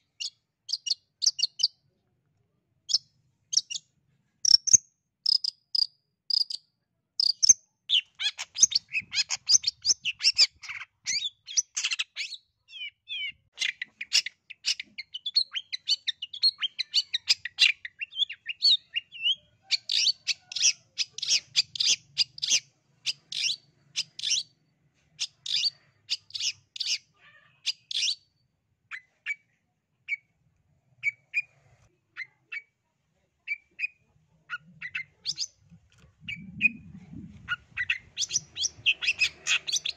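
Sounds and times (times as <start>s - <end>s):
bird singing sharp chattering notes: 34.5s - 35.6s, 36.2s - 39.9s.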